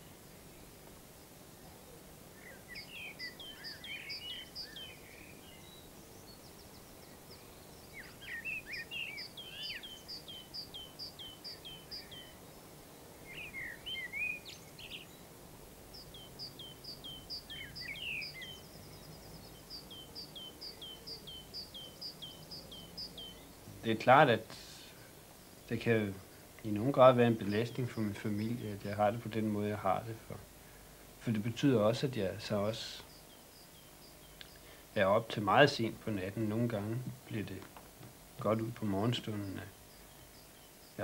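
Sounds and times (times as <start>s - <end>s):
faint outdoor hiss: 0.0s - 41.0s
songbirds singing: 0.0s - 41.0s.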